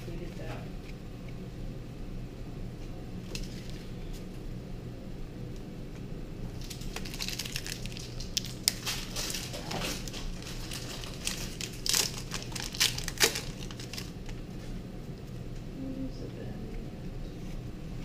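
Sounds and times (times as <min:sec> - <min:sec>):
foil wrapper tearing and crinkling: 0:03.3 - 0:03.9, 0:06.5 - 0:14.4.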